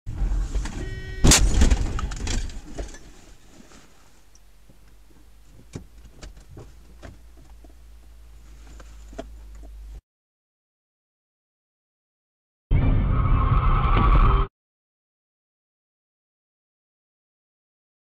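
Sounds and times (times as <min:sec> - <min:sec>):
brief high tone: 0:00.8 - 0:01.3
car crash impact: 0:01.2 - 0:03.0.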